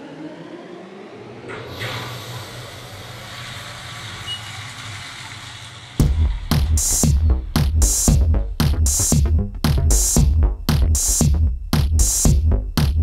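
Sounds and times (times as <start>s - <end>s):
hiss: 1.5s - 6.0s.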